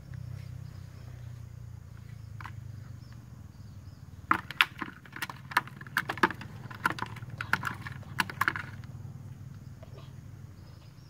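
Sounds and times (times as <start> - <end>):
plastic container clicking and crackling: 4.3 - 8.9.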